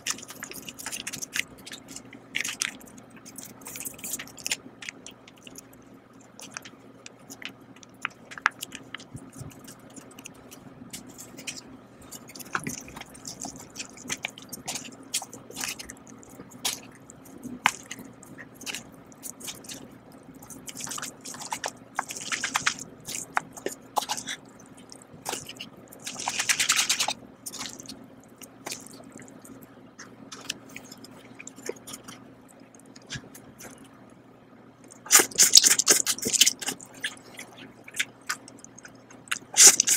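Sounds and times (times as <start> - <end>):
chopsticks stirring noodles: 6.4 - 24.6.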